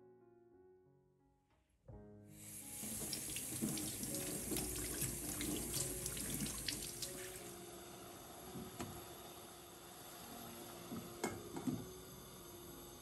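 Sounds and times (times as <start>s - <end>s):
tap running water: 2.4s - 7.6s.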